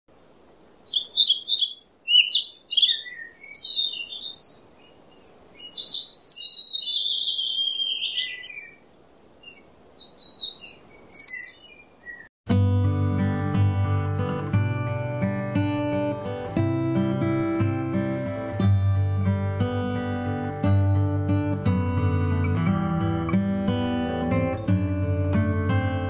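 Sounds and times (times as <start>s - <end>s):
songbird chirping and warbling: 0.8s - 12.3s
acoustic guitar music: 12.5s - 26.0s.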